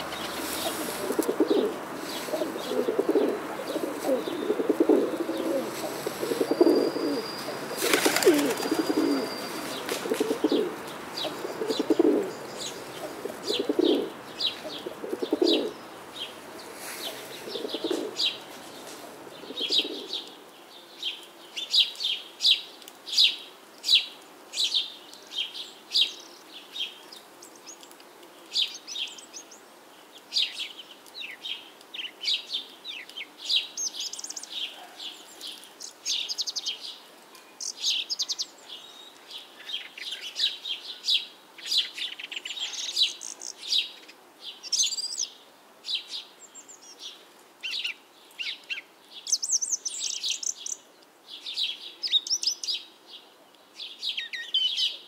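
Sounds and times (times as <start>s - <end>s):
dove cooing: 0.0s - 20.3s
rustle: 0.0s - 55.0s
small birds chirping: 0.0s - 55.0s.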